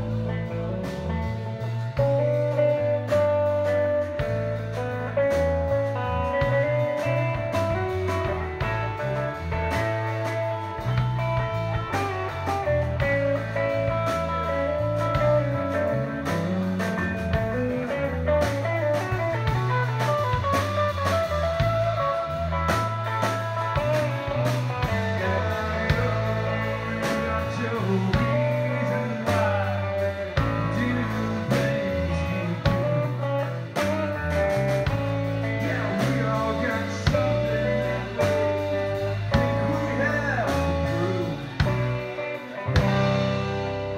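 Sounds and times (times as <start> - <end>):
electric bass: 0.0 - 43.9
electric guitar: 0.0 - 43.9.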